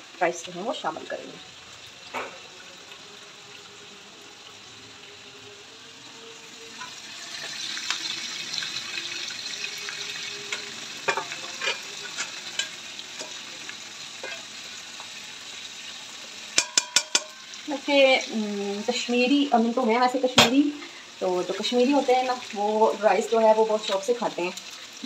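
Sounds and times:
meat sizzling in a pan: 0.0 - 25.0
spoon scraping a pan: 10.4 - 14.8, 16.5 - 17.6.

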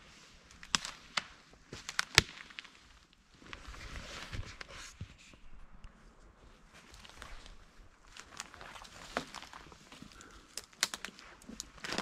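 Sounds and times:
twigs snapping underfoot: 0.5 - 3.7, 6.9 - 12.0
footsteps rustling undergrowth: 6.3 - 12.0.

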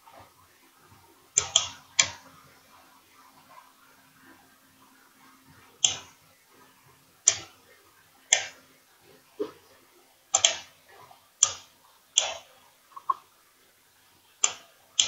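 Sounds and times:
computer mouse clicking: 1.4 - 2.2, 5.8 - 6.1, 7.2 - 7.5, 8.3 - 8.6, 10.3 - 10.7, 11.4 - 13.2, 14.4 - 14.6.

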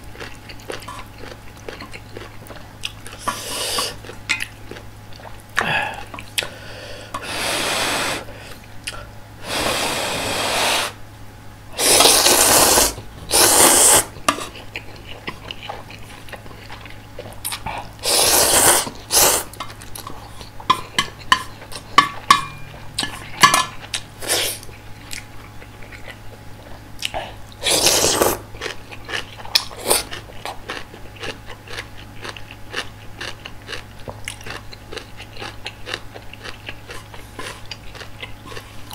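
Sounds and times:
loud noodle slurping: 3.1 - 4.0, 7.2 - 8.3, 9.4 - 11.0, 11.8 - 14.5, 18.0 - 19.6, 27.6 - 28.4
wet chewing and mouth smacks: 14.2 - 18.0, 23.8 - 27.2, 28.6 - 38.9.

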